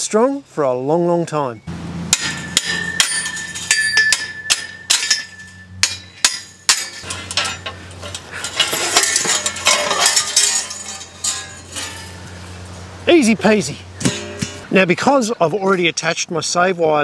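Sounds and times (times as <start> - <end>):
ringing metal note: 2.1 - 7.7, 14.0 - 14.7
hammer knocking metal: 2.1 - 7.8, 14.0 - 14.7
metal clatter: 2.1 - 12.6, 14.0 - 14.7.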